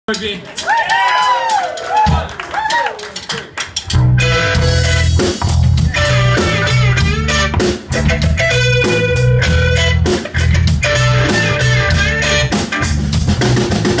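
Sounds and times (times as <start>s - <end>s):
drum kit beat: 0.1s - 14.0s
bass guitar line: 3.8s - 14.0s
electric guitar chords: 3.9s - 14.0s.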